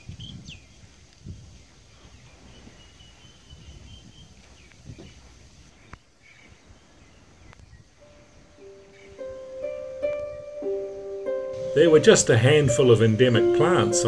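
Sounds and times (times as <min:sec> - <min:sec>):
wind rumbling on microphone: 0:00.0 - 0:10.6
high bird call: 0:08.0 - 0:14.0
piano music: 0:08.0 - 0:14.0.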